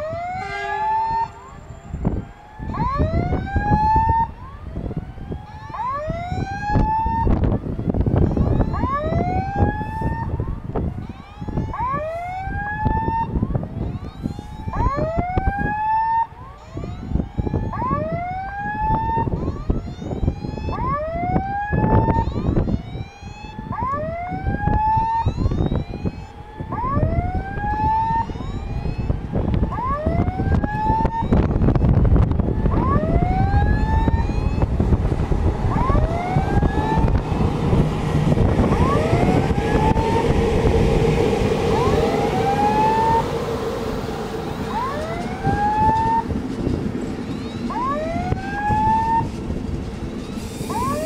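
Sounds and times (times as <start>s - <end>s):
level crossing warning tone: 0.0s - 51.0s
train rumble passing: 25.8s - 51.0s.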